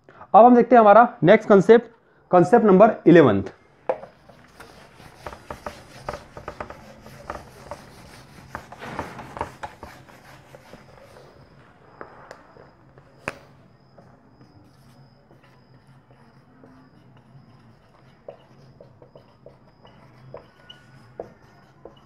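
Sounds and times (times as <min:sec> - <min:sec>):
whiteboard being wiped: 0:04.1 - 0:11.6
marker taps and clicks: 0:05.2 - 0:07.4.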